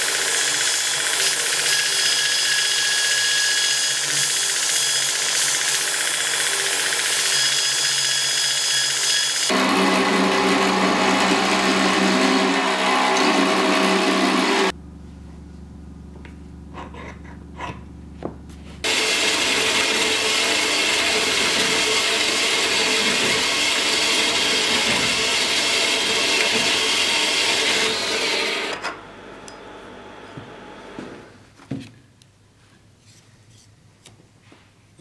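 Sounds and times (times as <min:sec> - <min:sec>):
bandsaw cutting steel: 0:00.0 - 0:14.7, 0:18.8 - 0:29.6
belt grinder grinding steel: 0:00.1 - 0:14.7, 0:18.8 - 0:29.6
low steady hum: 0:14.7 - 0:18.8.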